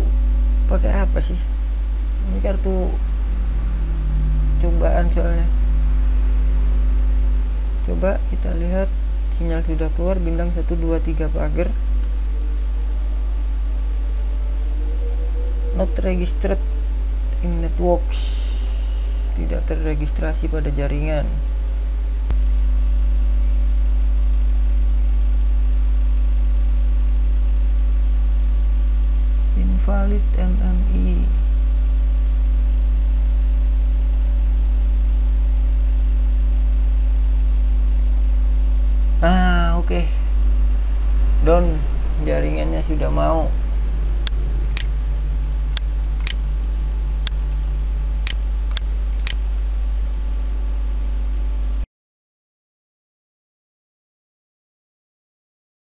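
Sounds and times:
electrical hum: 0:00.0 - 0:51.9
computer mouse clicking: 0:45.8 - 0:46.4, 0:48.2 - 0:49.4.

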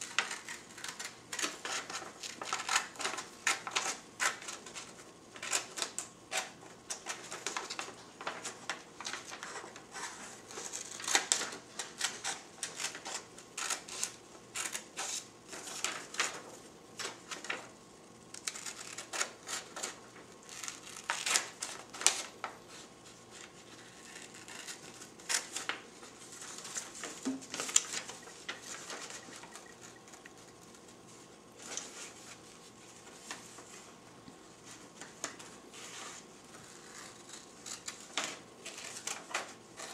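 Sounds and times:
scissors snipping paper: 0:18.4 - 0:22.3, 0:23.3 - 0:25.8, 0:35.0 - 0:39.9.

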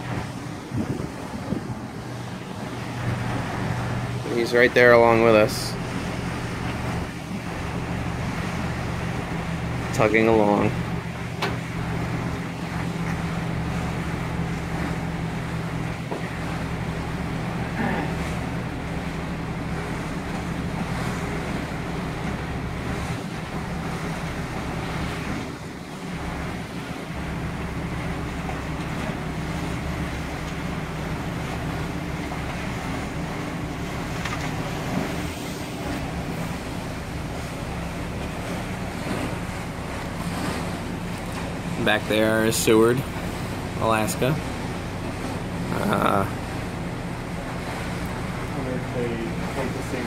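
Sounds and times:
wind on microphone: 0:00.0 - 0:04.2
rushing water: 0:00.0 - 0:50.0
ship engine drone: 0:00.0 - 0:50.0
wind: 0:00.0 - 0:50.0.

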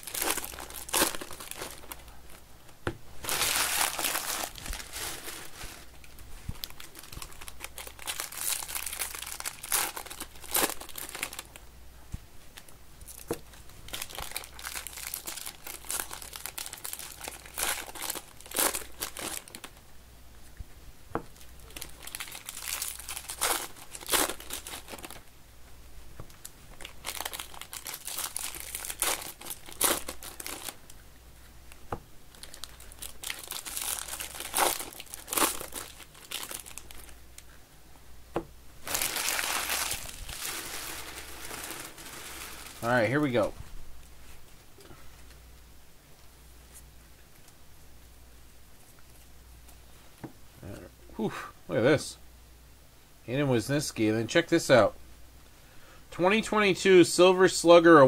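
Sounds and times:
foil wrappers crinkling and tearing: 0:00.0 - 0:02.2, 0:03.2 - 0:11.6, 0:13.1 - 0:19.8, 0:21.4 - 0:25.2, 0:26.7 - 0:30.9, 0:32.3 - 0:37.2, 0:38.8 - 0:43.5.

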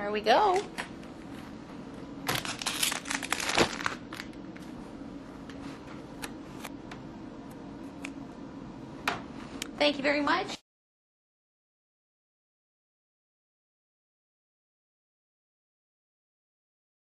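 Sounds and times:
gloves crinkling and rustling: 0:02.2 - 0:04.8.

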